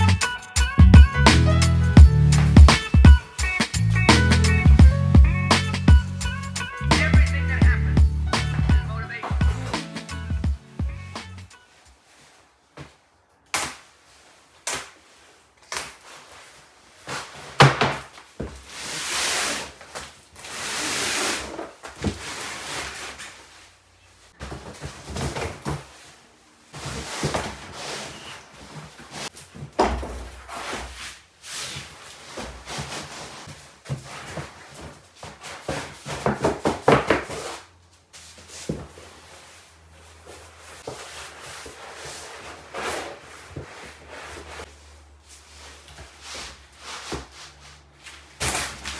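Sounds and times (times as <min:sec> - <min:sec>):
rustling sweeps: 0:11.6 - 0:17.6, 0:37.4 - 0:48.4
scrapes: 0:18.4 - 0:36.4
mat thumps on concrete: 0:29.5 - 0:30.4, 0:35.6 - 0:37.5.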